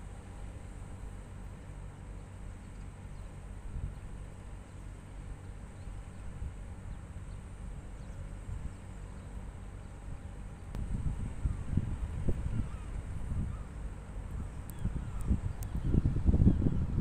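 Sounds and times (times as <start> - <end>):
distant diesel locomotive rumble: 0.0 - 17.0
wind noise: 10.7 - 13.6, 14.2 - 17.0.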